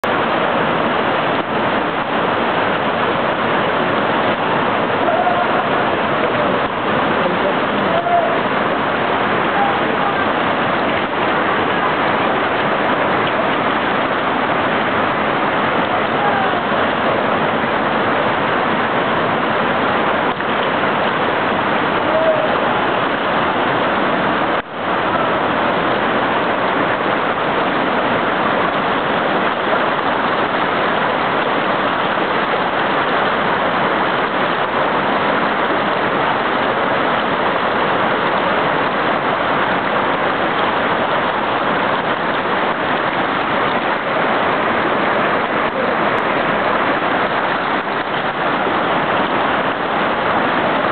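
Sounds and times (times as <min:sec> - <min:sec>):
floodwater rushing down a street: 0:00.0 - 0:50.9.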